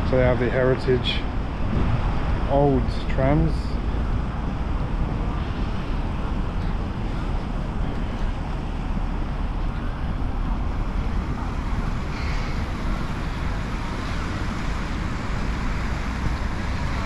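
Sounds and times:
road traffic: 0.0s - 17.0s
wind buffeting microphone: 0.0s - 17.0s.

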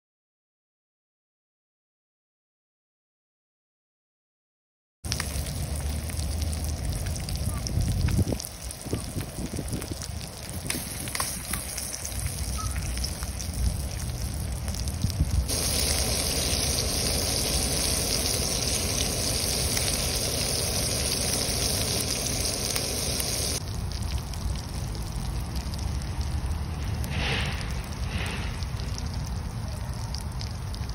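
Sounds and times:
hot oil sizzling in frying pan: 5.1s - 30.9s.

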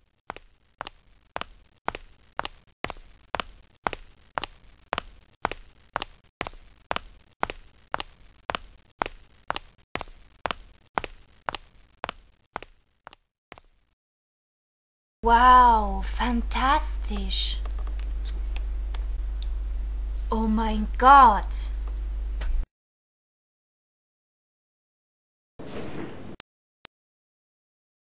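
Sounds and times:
hard-soled footsteps on stone: 0.2s - 13.9s.

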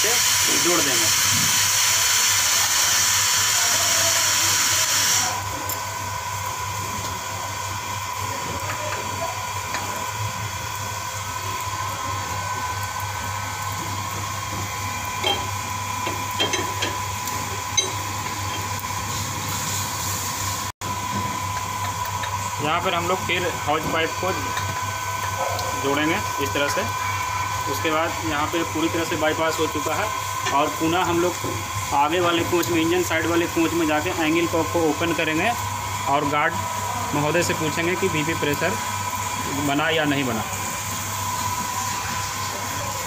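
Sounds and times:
compressed air hissing: 0.0s - 5.4s.

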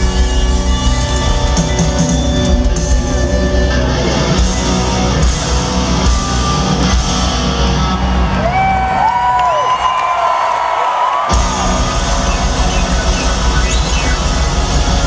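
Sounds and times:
live rock band playing: 0.0s - 9.0s, 11.3s - 15.0s.

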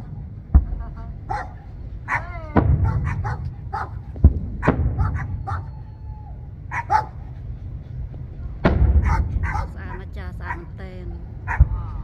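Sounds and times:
firework shells bursting: 2.6s - 6.7s, 8.6s - 10.3s.

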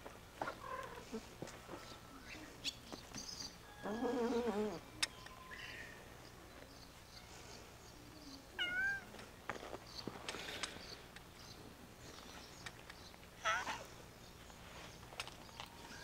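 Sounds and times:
cats meowing: 3.8s - 4.8s, 8.6s - 9.2s, 13.4s - 14.0s.

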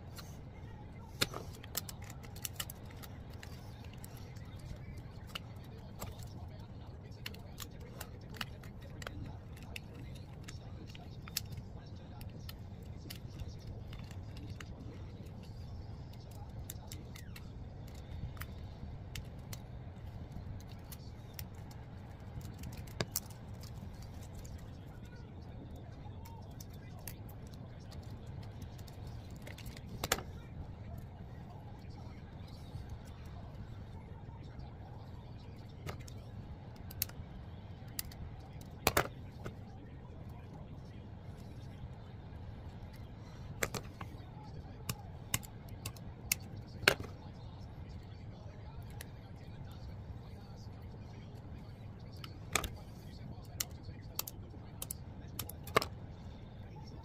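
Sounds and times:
hard plastic clicks and snaps: 1.1s - 6.4s, 7.1s - 25.0s, 25.8s - 31.0s, 37.8s - 39.6s, 43.0s - 44.2s, 44.8s - 47.2s, 52.2s - 52.9s, 53.5s - 56.0s
plastic part clicking and tapping: 38.8s - 39.1s, 43.6s - 44.1s.

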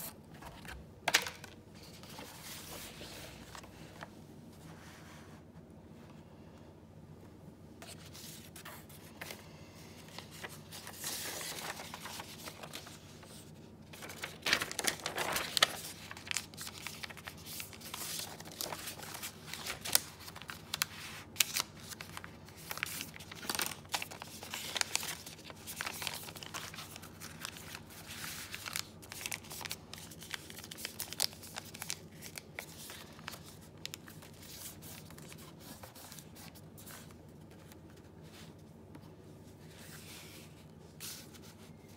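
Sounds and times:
paper rustling and crinkling: 0.0s - 5.3s, 7.8s - 41.9s.

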